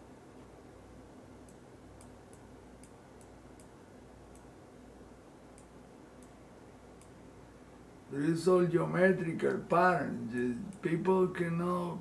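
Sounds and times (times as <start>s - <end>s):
faint low hum: 0.0s - 12.0s
computer mouse clicking: 1.4s - 4.5s.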